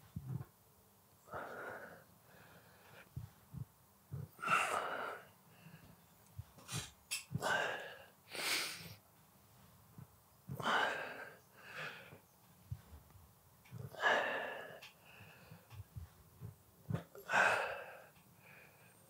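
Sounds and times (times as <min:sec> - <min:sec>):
man breathing hard: 0:01.3 - 0:03.6, 0:04.4 - 0:06.0, 0:06.6 - 0:09.0, 0:10.6 - 0:12.9, 0:13.8 - 0:16.2, 0:17.1 - 0:19.0.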